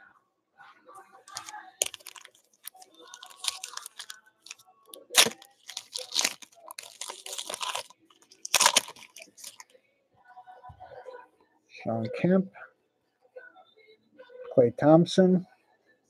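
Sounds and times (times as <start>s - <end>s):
foil pack tearing and crinkling: 1.3s - 9.6s.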